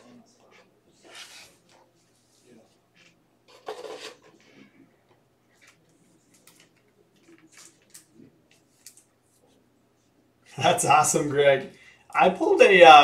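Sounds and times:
cards rustling: 5.5s - 9.6s.

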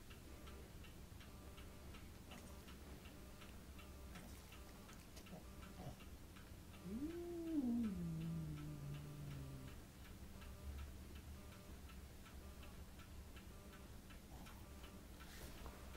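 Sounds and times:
faint ticking: 0.0s - 15.9s
cat meowing: 6.8s - 9.7s.

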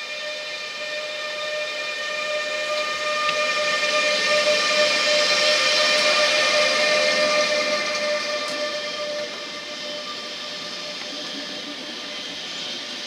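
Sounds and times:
electric locomotive whine: 0.0s - 13.0s
train rolling noise hiss: 0.0s - 13.0s.

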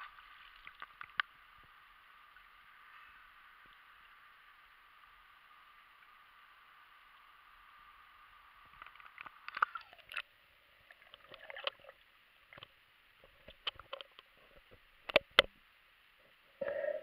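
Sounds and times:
soft underwater gurgles: 0.0s - 17.0s
underwater clicks and knocks: 8.7s - 10.3s, 11.1s - 11.9s, 12.5s - 15.6s.

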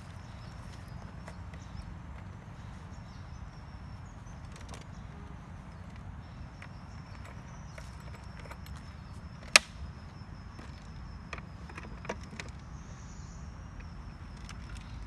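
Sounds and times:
sharp loud click: 9.5s - 9.9s.

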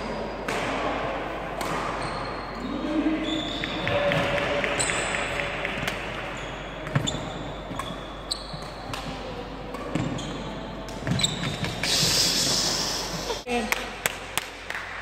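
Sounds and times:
rackets hitting shuttlecock: 0.4s - 2.4s, 3.5s - 11.9s
shoes squeaking on wooden floor: 6.3s - 8.9s, 9.9s - 12.2s.

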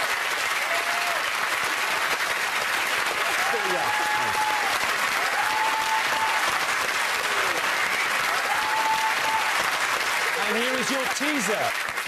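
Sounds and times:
audience applauding: 0.0s - 12.0s
long held calls from crowd: 3.2s - 9.9s.

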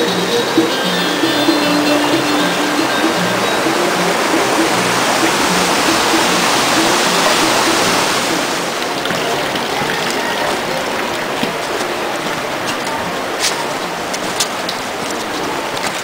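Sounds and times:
background music: 0.0s - 8.8s
mountain stream rushing: 0.0s - 16.0s.

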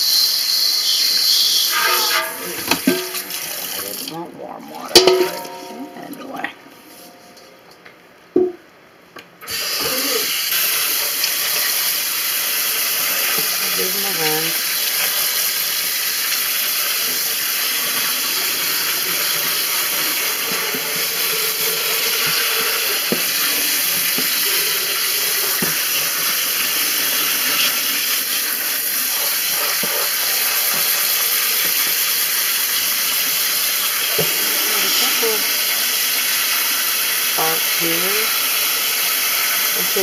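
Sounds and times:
water spraying onto beans: 9.5s - 40.0s.

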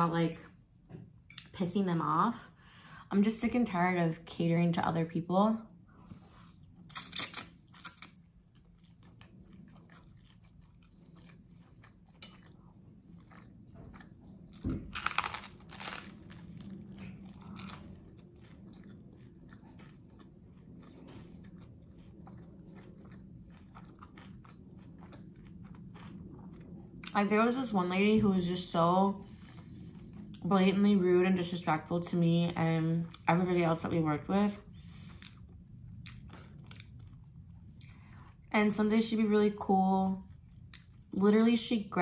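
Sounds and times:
chewing with small crunches: 6.0s - 27.3s, 29.2s - 30.5s, 34.6s - 38.6s, 40.2s - 41.1s
crunchy bite into bread: 13.3s - 18.9s.

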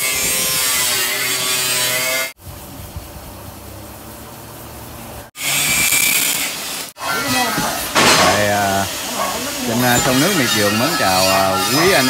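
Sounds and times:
power tool grinding: 0.0s - 2.4s, 5.3s - 12.0s.

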